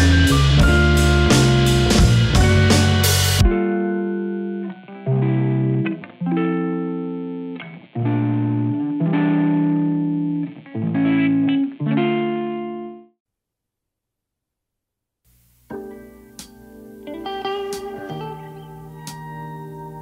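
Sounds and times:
soft plucked instrumental music: 0.0 - 13.1, 15.6 - 20.0.

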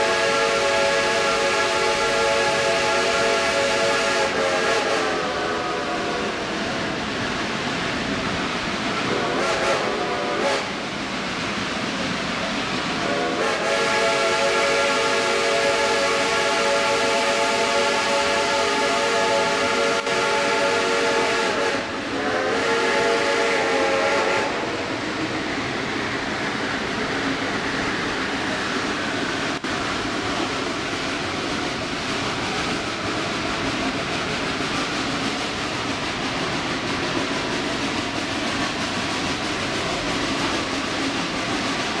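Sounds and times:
steam locomotive whistle: 0.0 - 6.4, 9.0 - 10.8, 13.0 - 24.9
steam train running: 0.0 - 42.0.

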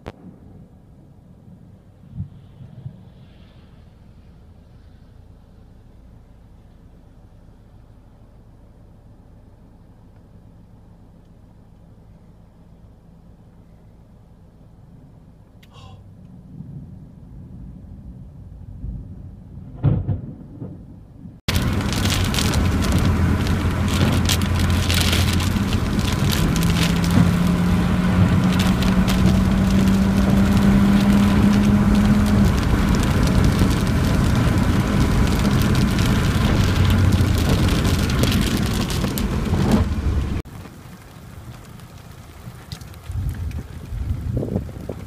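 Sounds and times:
thump: 19.8 - 20.8
heavy rain pelting: 21.4 - 45.0.

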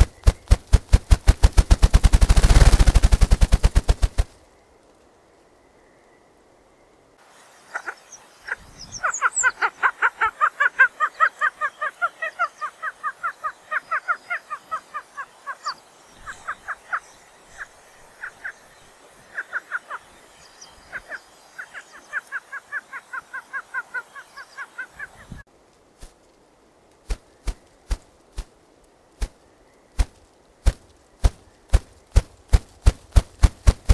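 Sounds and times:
grouse calling: 7.7 - 20.2, 20.9 - 25.4.

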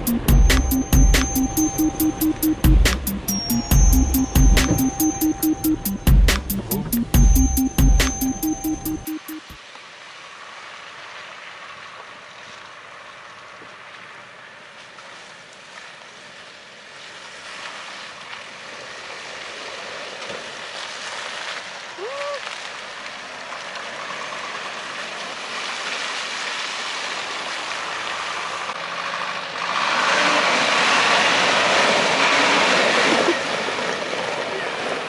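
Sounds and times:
truck rushing through mud: 10.1 - 35.0
suv driving through mud: 10.3 - 35.0.

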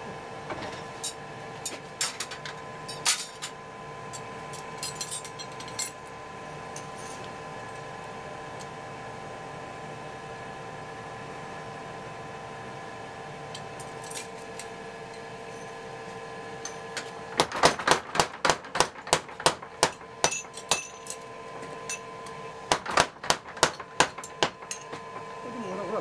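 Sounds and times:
steady hum: 13.3 - 26.0.

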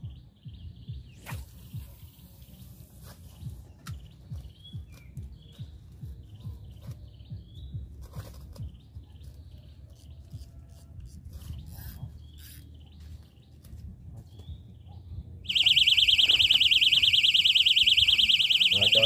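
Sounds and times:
small birds chirping: 0.0 - 19.0
warbling electronic alarm: 15.4 - 19.0.

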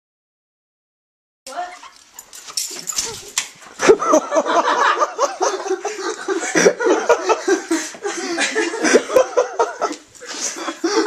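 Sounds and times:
people laughing and giggling: 2.8 - 11.0.

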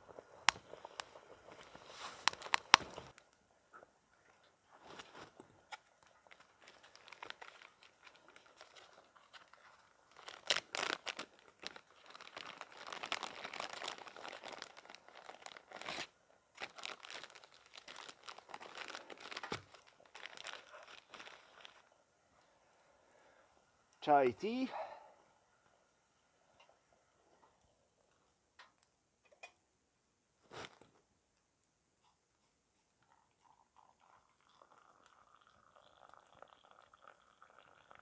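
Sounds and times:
packet crinkling and tearing: 0.4 - 3.2, 4.9 - 21.8.

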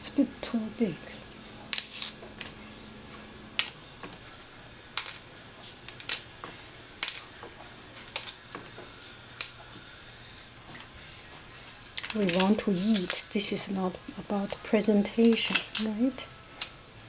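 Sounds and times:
endive leaves snapping by hand: 1.6 - 2.6, 3.5 - 4.2, 4.8 - 6.3, 7.0 - 8.7, 9.3 - 9.6, 11.8 - 13.5, 14.5 - 16.0, 16.6 - 16.8.

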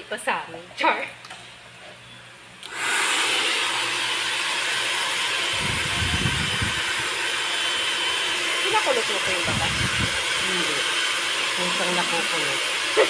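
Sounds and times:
hair dryer blowing: 2.6 - 13.0.

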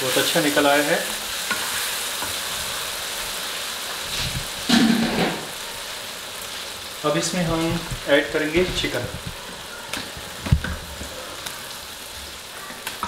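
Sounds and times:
masala sizzling in oil: 0.0 - 13.0
wooden spatula stirring: 7.0 - 11.6.

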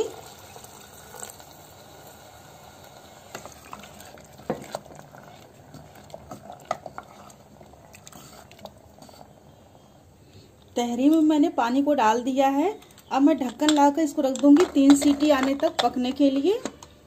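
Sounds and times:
watery swishing of stirring: 3.6 - 9.3.

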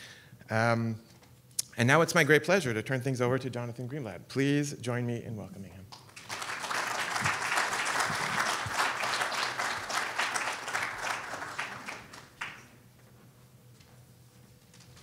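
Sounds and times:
audience applauding: 6.0 - 12.8.

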